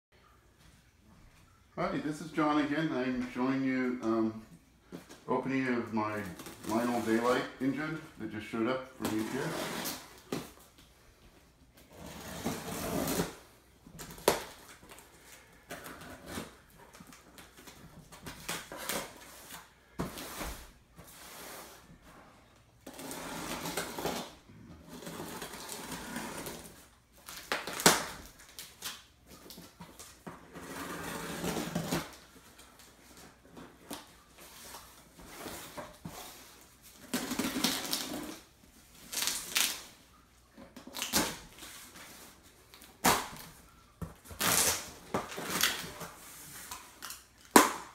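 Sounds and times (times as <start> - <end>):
cardboard rustling: 4.9 - 10.8
scissors scraping packing tape: 37.0 - 38.4, 44.3 - 46.1.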